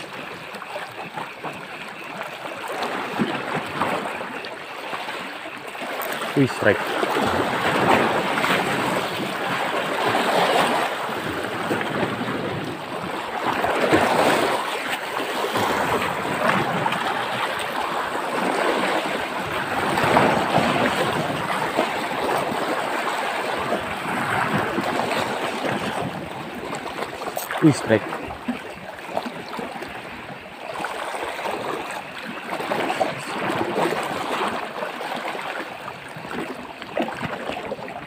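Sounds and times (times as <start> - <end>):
sea water washing over rocks: 0.0 - 38.0
wind buffeting microphone: 6.9 - 14.7, 15.4 - 27.6.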